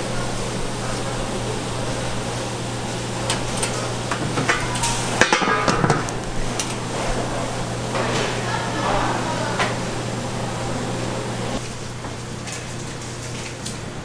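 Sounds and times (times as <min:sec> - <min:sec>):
steady low hum: 0:00.0 - 0:13.2
dishes and utensils clattering: 0:03.2 - 0:09.8.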